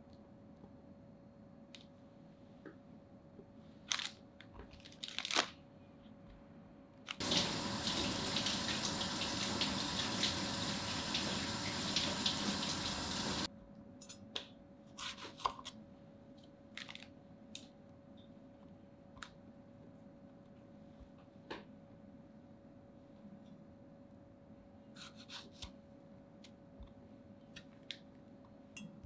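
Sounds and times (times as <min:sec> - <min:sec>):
water tap running: 0:07.2 - 0:13.5.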